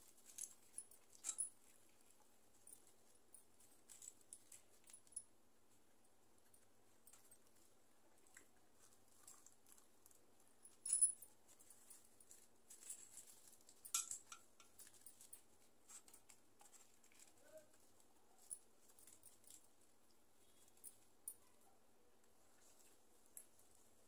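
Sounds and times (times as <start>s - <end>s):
chewing: 7.1s - 10.3s.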